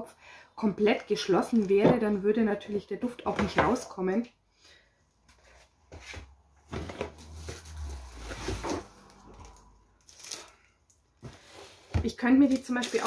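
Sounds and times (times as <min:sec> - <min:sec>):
paper and plastic rustling: 0:06.7 - 0:10.6, 0:11.2 - 0:13.0.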